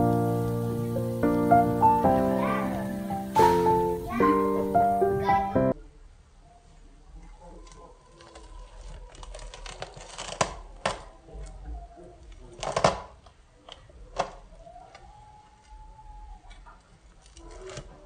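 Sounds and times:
crispy crust crackling: 7.1s - 18.0s.

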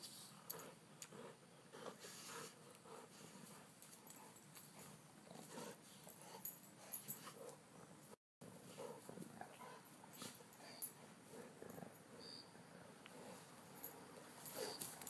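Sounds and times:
dogs grunting and snuffling: 0.1s - 15.0s.

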